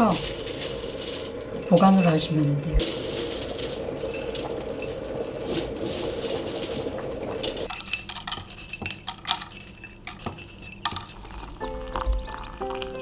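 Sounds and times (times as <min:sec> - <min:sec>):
dry pieces clicking into infuser: 0:00.0 - 0:13.0
dry pieces rustling against glass: 0:00.0 - 0:13.0.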